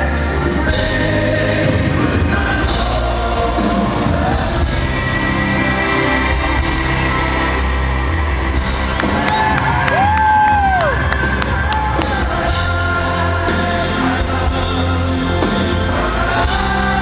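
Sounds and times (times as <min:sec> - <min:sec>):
man singing: 0:00.0 - 0:07.0, 0:11.3 - 0:17.0
live band music: 0:00.0 - 0:17.0.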